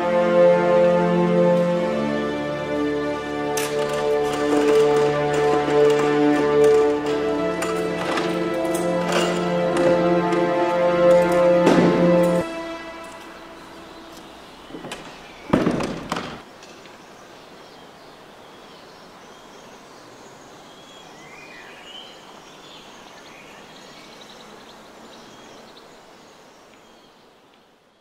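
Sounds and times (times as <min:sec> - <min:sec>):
steady noise hiss: 0:00.0 - 0:28.0
sharp cracks: 0:14.8 - 0:17.0.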